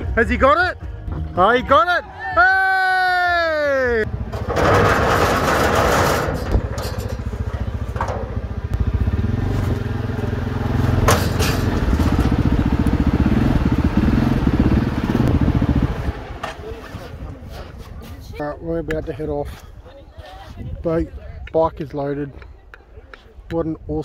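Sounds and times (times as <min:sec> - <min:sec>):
quad bike engine revving: 0:04.0 - 0:16.7
rough scraping: 0:04.1 - 0:18.4.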